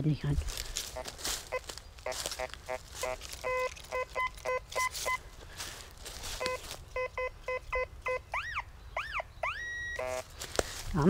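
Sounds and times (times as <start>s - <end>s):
metal detector beeps: 0.9s - 5.2s, 6.3s - 10.3s
steady high detector tone: 1.0s - 5.2s, 6.3s - 10.3s
metal detector sweeping tones: 2.4s - 5.2s, 6.4s - 10.3s.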